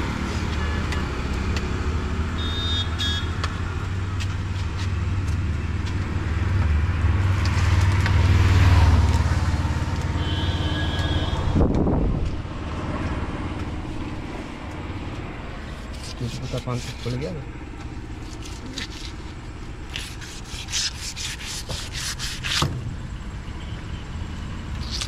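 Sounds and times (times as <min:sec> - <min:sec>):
vehicle engine running: 0:03.7 - 0:20.6.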